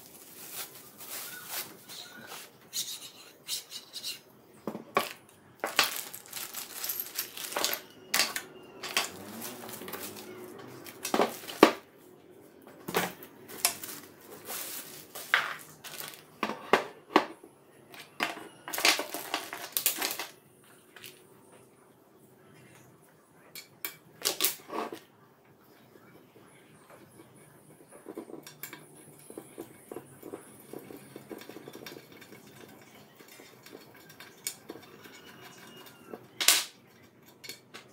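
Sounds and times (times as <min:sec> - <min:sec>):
plastic bags crinkling: 0:00.0 - 0:02.5, 0:05.0 - 0:11.8, 0:13.1 - 0:16.4, 0:18.7 - 0:20.3.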